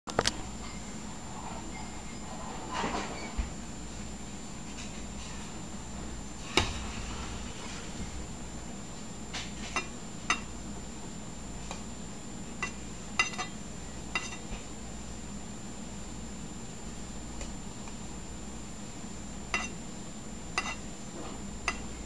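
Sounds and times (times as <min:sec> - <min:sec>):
steady low hum: 0:00.1 - 0:22.0
metal knife clinking on metal: 0:12.6 - 0:13.6, 0:14.2 - 0:14.4, 0:19.5 - 0:19.8, 0:20.6 - 0:20.8.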